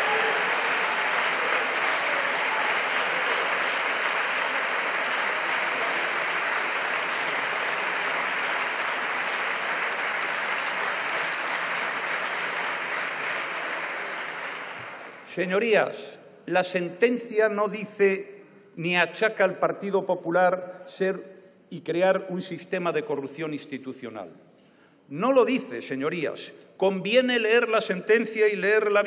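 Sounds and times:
crowd applauding: 0:00.0 - 0:15.4.

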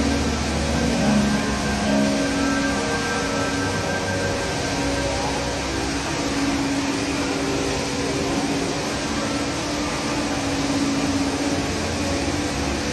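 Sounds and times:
indoor waterfall rushing: 0:00.0 - 0:12.9.

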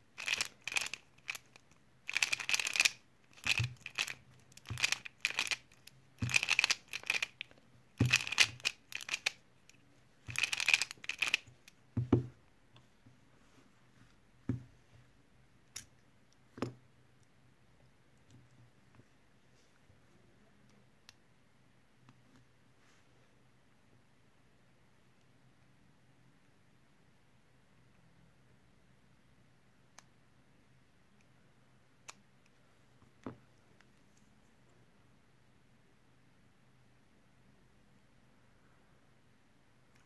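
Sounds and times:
plastic puzzle clacking turns: 0:00.2 - 0:09.4, 0:10.3 - 0:11.7.

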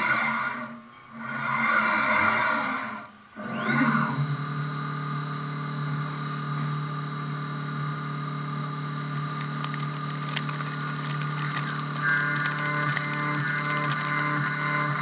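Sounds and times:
low hum: 0:00.0 - 0:15.0
milling machine spindle whine: 0:00.0 - 0:15.0.

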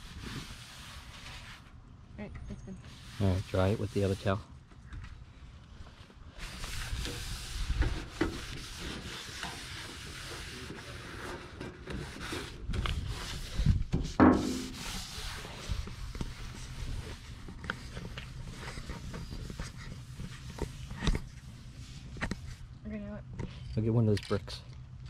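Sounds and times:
paper towel rubbing panel: 0:06.4 - 0:21.2.

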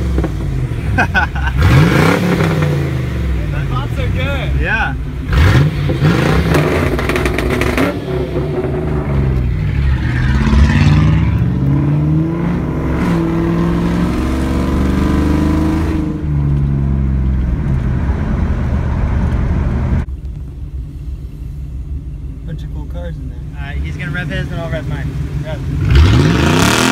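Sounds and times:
car engine accelerating through gears: 0:00.0 - 0:03.4, 0:05.2 - 0:20.1, 0:25.7 - 0:26.9
loud raspy engine revving: 0:00.0 - 0:04.6, 0:05.2 - 0:16.3, 0:24.8 - 0:26.9.

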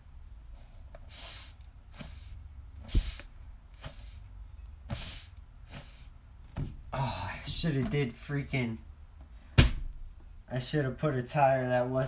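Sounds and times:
air hissing from tire: 0:00.9 - 0:04.3, 0:04.9 - 0:06.2.

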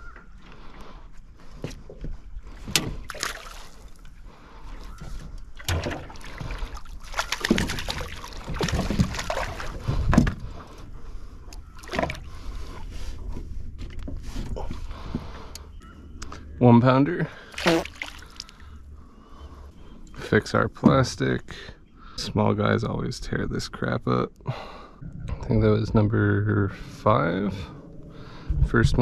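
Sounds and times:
water sloshing and splashing: 0:01.4 - 0:15.2, 0:17.4 - 0:18.8.

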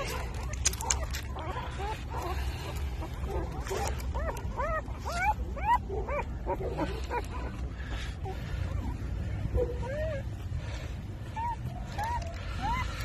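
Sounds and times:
newborn puppies whimpering: 0:00.0 - 0:13.0.

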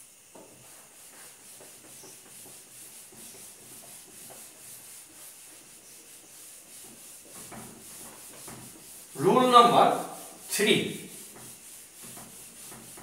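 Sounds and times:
eraser rubbing whiteboard: 0:00.3 - 0:13.0.

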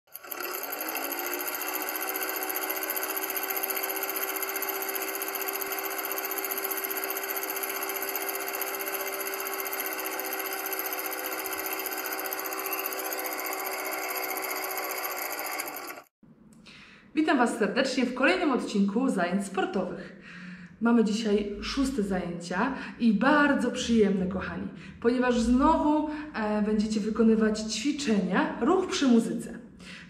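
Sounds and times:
film projector clatter: 0:00.1 - 0:16.1.

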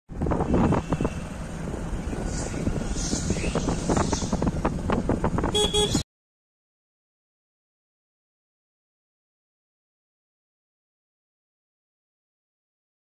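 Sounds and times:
motorcycle engine running: 0:00.1 - 0:06.0
wind buffeting microphone: 0:00.1 - 0:06.0
motorcycle horn toots: 0:05.5 - 0:06.0.

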